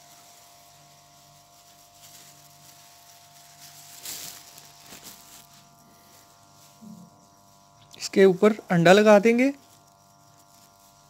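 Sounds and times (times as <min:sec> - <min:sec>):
short rustle: 0:00.0 - 0:07.7
pastry handling noise: 0:00.0 - 0:07.8
faint electrical hum: 0:00.0 - 0:11.0.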